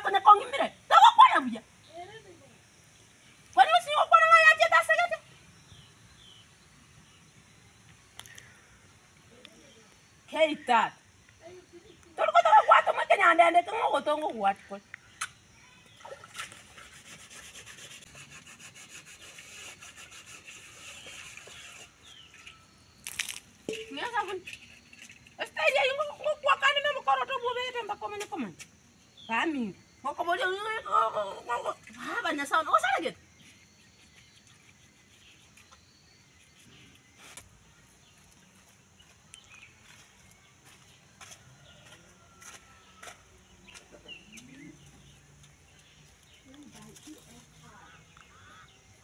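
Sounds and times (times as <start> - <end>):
faint outdoor ambience: 0.0 - 49.0
faint bird chirp: 4.9 - 12.6, 14.6 - 25.4, 29.0 - 49.0.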